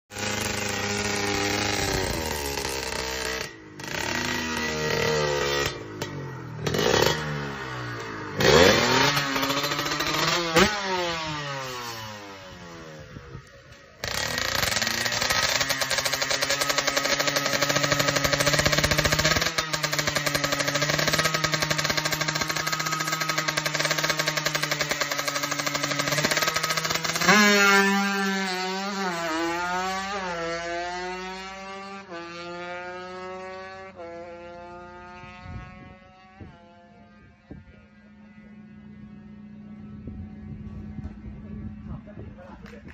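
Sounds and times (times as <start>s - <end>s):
motorcycle engine revving: 0.1s - 42.9s.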